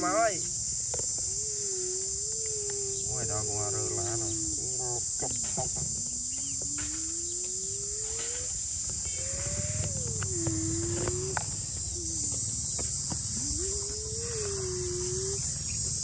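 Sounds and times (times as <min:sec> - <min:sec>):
voice: 0:00.0 - 0:00.5, 0:03.1 - 0:05.9
insects chorus: 0:00.0 - 0:16.0
low wavering tone: 0:01.3 - 0:15.8.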